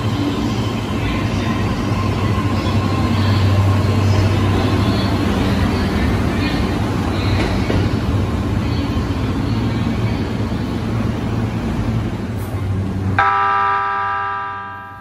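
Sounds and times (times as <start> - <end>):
electric train rumbling past: 0.0 - 15.0
train horn blast: 13.2 - 15.0.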